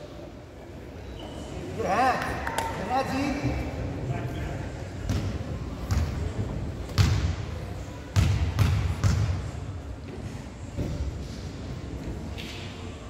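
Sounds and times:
basketball bouncing on gym floor: 5.1s - 6.3s, 6.9s - 7.4s, 8.2s - 9.5s.

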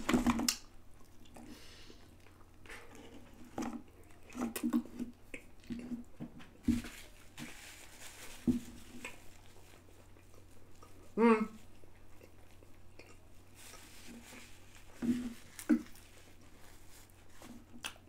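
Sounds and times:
person chewing food: 0.0s - 6.6s, 8.8s - 18.0s.

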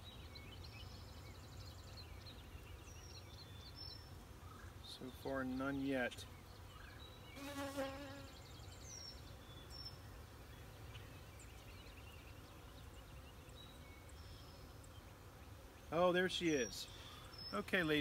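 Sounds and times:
bees buzzing: 7.4s - 8.3s.

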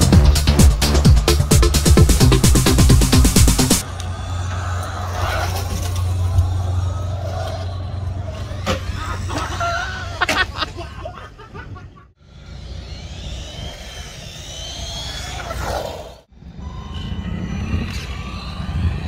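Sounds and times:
model car motors whining: 3.8s - 10.4s, 12.2s - 16.2s.

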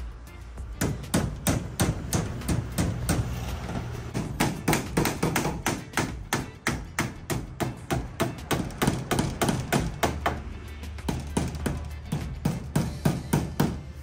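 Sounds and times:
hammers nailing panels: 0.6s - 14.0s.

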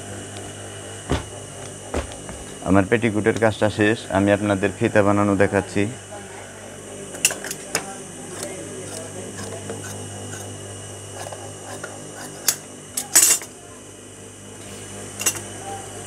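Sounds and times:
shears cutting fabric: 7.6s - 13.2s.

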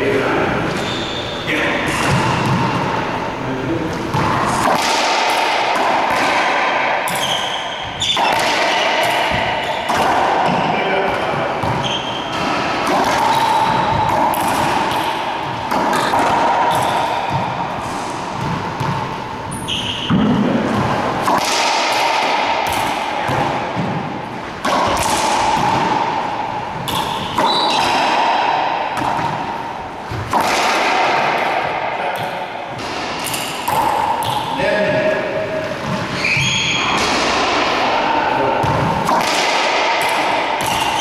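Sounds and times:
sneaker squeaks: 0.7s - 2.8s, 7.1s - 10.8s, 11.6s - 12.6s, 16.7s - 17.6s, 18.4s - 20.5s, 26.9s - 28.0s, 35.8s - 37.1s, 40.6s - 41.0s
ball thuds echoing in court: 1.8s - 3.1s, 4.0s - 41.0s.

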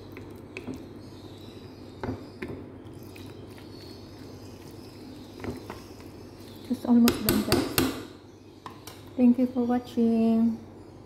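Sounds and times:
low background hum: 0.0s - 11.0s
utensil knocking baking dish: 7.0s - 8.1s.

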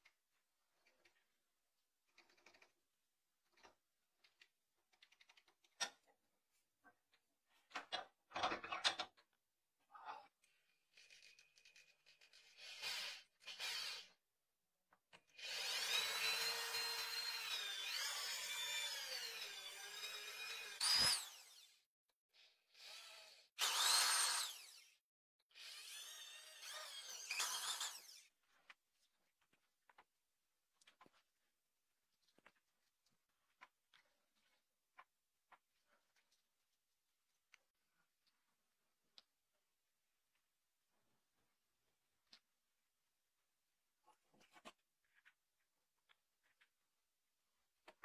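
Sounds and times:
electric drill boring into wood: 12.4s - 14.1s, 15.4s - 21.8s, 22.7s - 25.0s, 25.6s - 28.3s.

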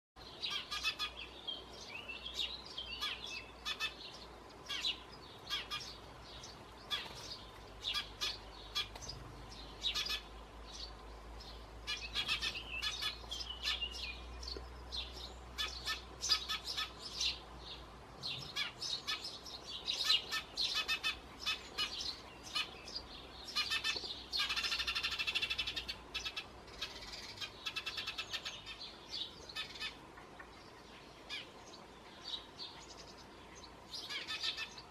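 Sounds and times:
sparrows chirping: 0.2s - 34.9s.

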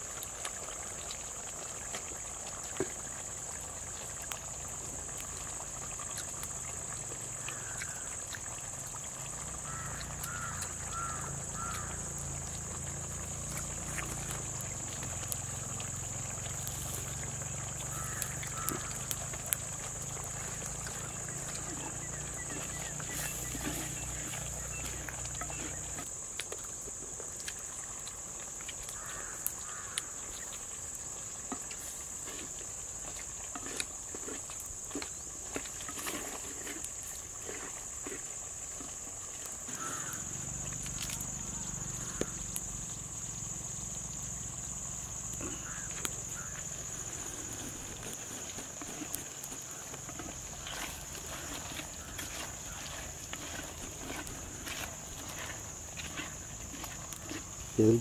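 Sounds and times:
curry simmering in pot: 0.0s - 58.0s
high insect drone: 6.6s - 58.0s
wood fire crackling: 13.3s - 21.6s
bird chirps: 21.0s - 26.0s.

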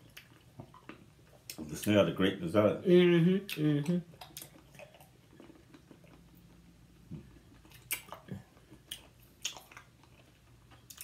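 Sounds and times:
mouth smacks of chewing: 3.5s - 6.6s, 7.2s - 11.0s.

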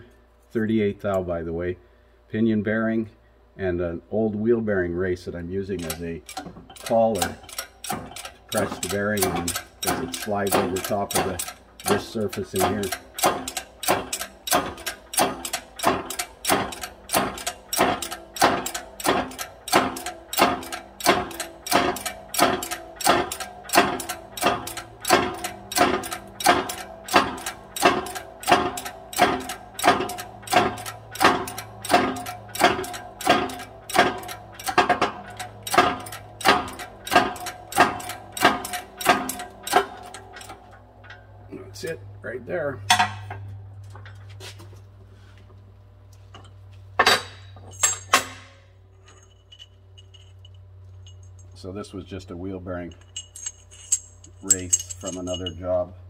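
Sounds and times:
hydraulic press metallic clacking: 5.7s - 41.4s, 47.0s - 51.7s, 52.8s - 55.8s.

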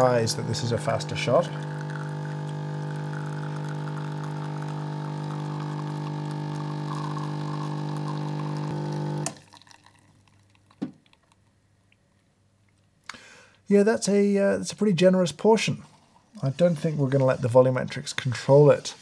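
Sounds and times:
espresso machine pump humming: 0.0s - 10.1s
coffee pouring into cup: 0.0s - 11.6s.

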